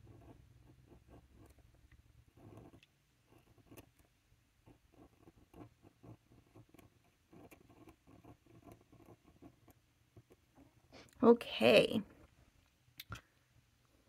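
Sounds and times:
pen nib scratching on card: 0:00.0 - 0:10.5.

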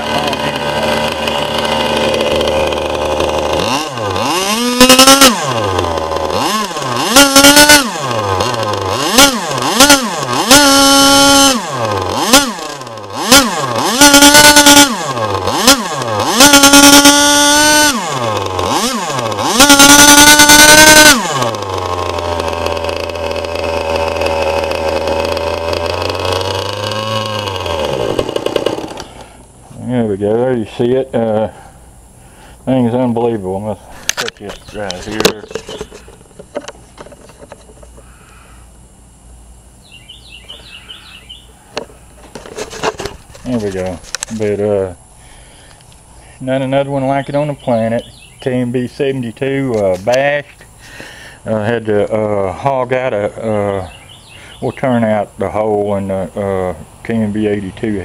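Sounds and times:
model engine revving: 0:00.0 - 0:29.4.

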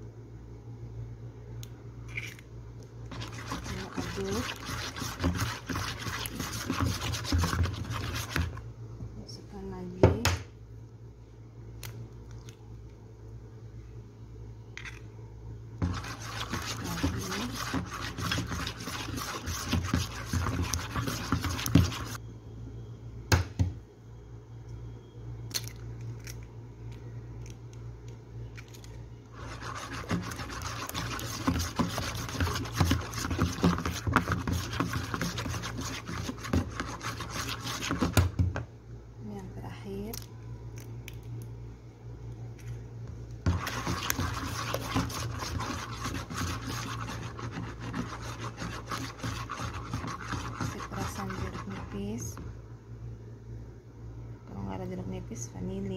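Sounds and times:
mixer beater scraping bowl: 0:03.1 - 0:08.6, 0:15.8 - 0:22.2, 0:29.4 - 0:38.4, 0:43.5 - 0:52.4.

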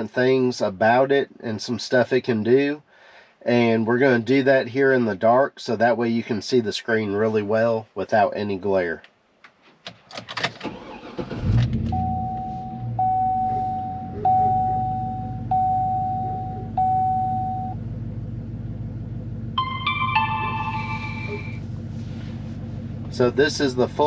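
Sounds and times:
truck engine starting and idling: 0:10.2 - 0:24.0
vehicle chime: 0:12.0 - 0:17.8, 0:19.6 - 0:21.6.

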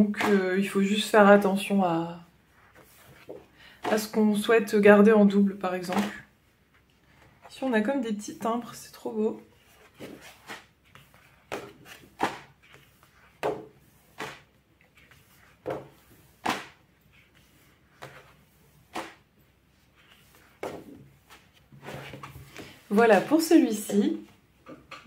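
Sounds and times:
paper pages flipping: 0:02.5 - 0:04.1, 0:09.6 - 0:23.4.

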